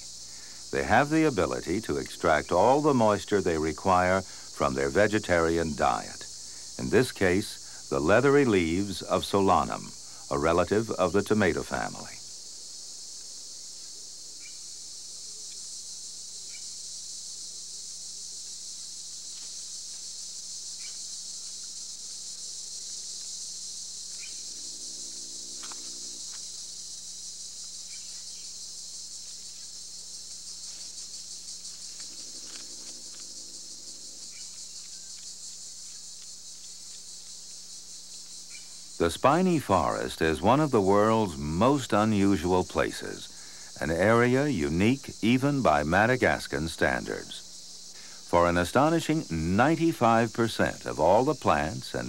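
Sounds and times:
insect chorus: 0.0s - 52.0s
faint chirps: 23.2s - 26.7s, 29.3s - 52.0s.

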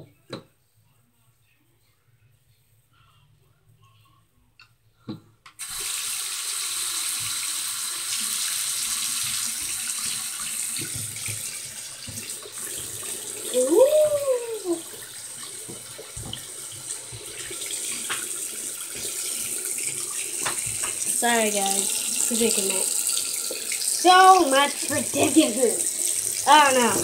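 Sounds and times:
tap water running into sink: 5.6s - 27.0s.

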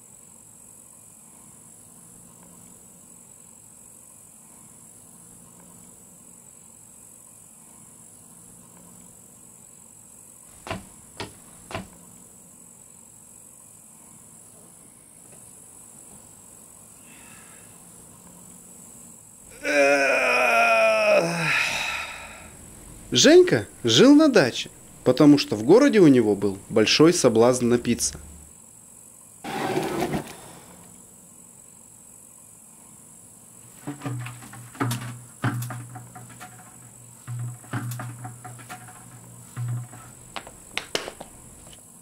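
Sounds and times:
faint hiss: 0.0s - 19.6s, 20.8s - 35.7s
sharp knocks: 10.5s - 12.0s, 37.3s - 41.6s
low hum: 21.7s - 28.5s.

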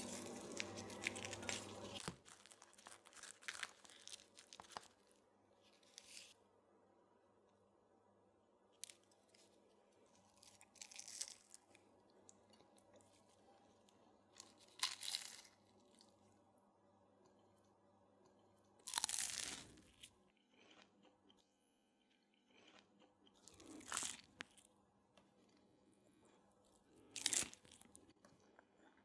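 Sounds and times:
pastry crust crunching: 0.0s - 6.4s, 8.8s - 16.3s, 18.3s - 21.4s, 22.4s - 25.7s, 26.6s - 29.0s.

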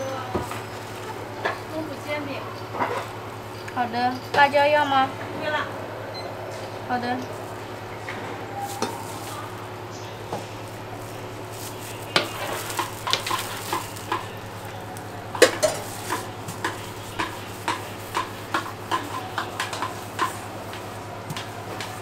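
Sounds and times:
utensil clicking against metal pot: 12.2s - 22.0s.

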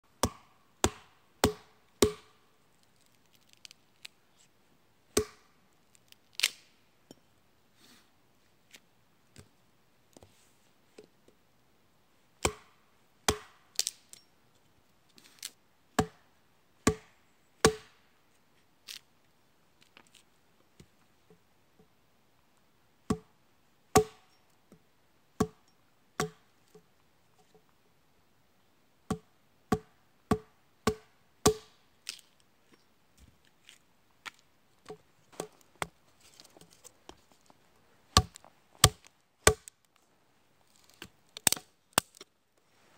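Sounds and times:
hatchet chopping wood: 0.2s - 2.4s, 5.2s - 5.5s, 12.4s - 14.0s, 16.0s - 18.0s, 23.1s - 23.3s, 23.9s - 24.3s, 25.4s - 25.6s, 26.2s - 26.5s, 29.1s - 31.8s, 38.2s - 39.7s, 41.4s - 42.2s.

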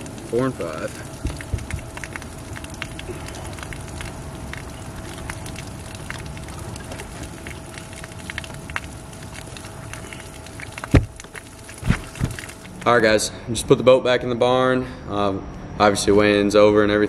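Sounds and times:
spattering crackling water: 0.0s - 13.3s
faint steady hum: 0.0s - 17.0s
heavy footstep on boat deck: 1.2s - 1.9s, 11.8s - 12.4s.

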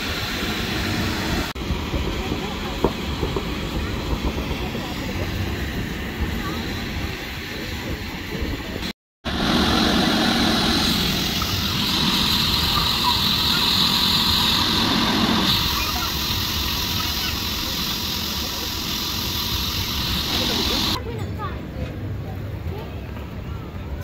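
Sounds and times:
electric air blower running: 9.2s - 21.0s.

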